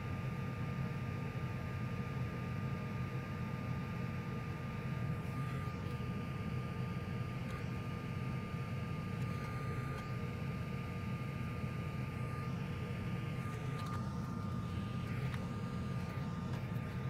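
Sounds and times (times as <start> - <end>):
thin high whine: 3.9 - 17.0.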